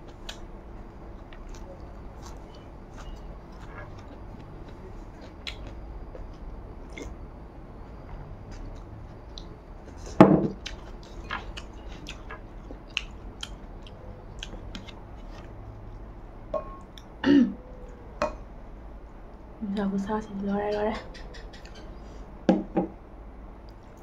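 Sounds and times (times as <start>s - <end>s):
person chewing with wet clicks: 0.0s - 7.2s, 7.8s - 10.0s, 10.6s - 16.0s, 16.8s - 18.4s, 23.6s - 24.0s.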